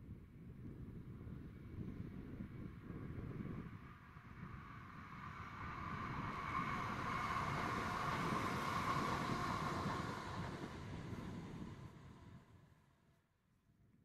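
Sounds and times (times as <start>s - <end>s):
wind on microphone: 0.0s - 12.5s
electric train passing: 4.8s - 11.8s.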